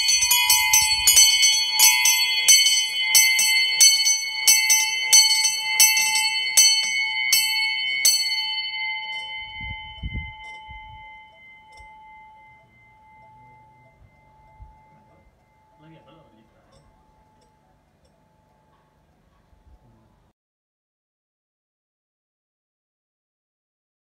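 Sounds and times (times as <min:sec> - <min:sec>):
small bells ringing: 0:00.0 - 0:19.2.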